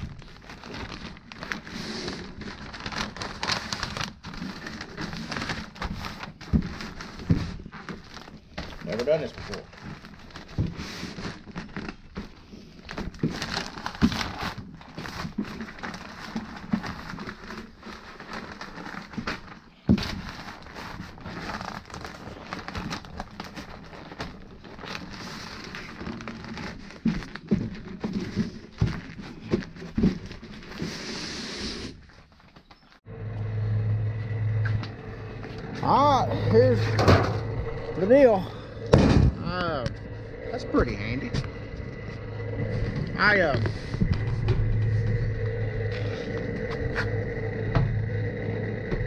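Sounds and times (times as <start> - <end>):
paper rustling and crinkling: 0.0 - 31.1
steady low hum: 33.1 - 49.0.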